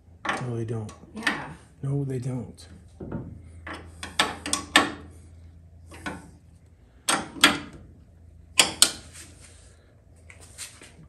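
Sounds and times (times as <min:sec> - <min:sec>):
faint low hum: 0:00.0 - 0:11.0
clicks and knocks of parts: 0:00.2 - 0:01.5, 0:02.9 - 0:05.1, 0:05.9 - 0:06.3, 0:07.0 - 0:07.9, 0:08.5 - 0:09.1.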